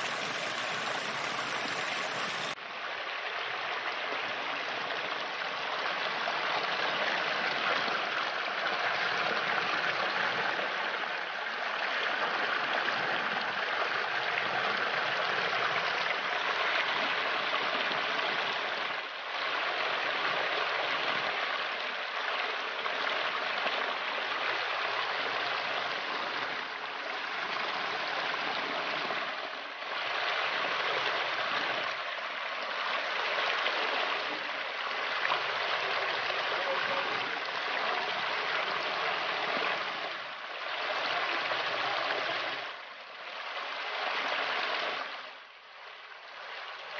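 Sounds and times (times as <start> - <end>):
water splashing over rocks: 0.0 - 2.6.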